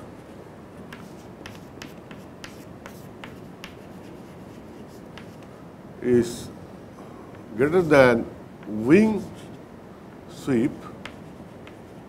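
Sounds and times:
chalk tapping and scratching: 0:00.9 - 0:05.5, 0:11.0 - 0:12.0.

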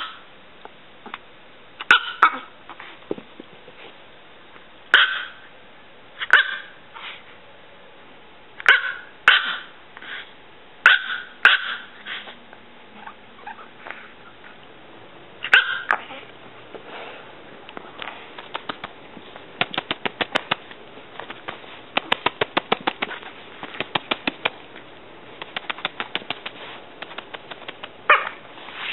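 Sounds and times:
small dog barking: 0:01.8 - 0:02.5, 0:04.9 - 0:05.4, 0:06.2 - 0:06.8, 0:08.6 - 0:09.7, 0:10.8 - 0:12.0, 0:15.4 - 0:16.2, 0:28.1 - 0:28.4
rapid short sharp sounds: 0:19.6 - 0:24.6, 0:25.4 - 0:28.0.

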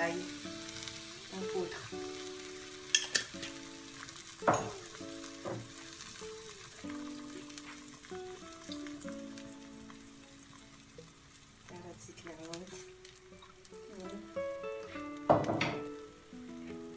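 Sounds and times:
vegetables sizzling in a frying pan: 0:00.0 - 0:16.9
knock: 0:15.3 - 0:15.8.

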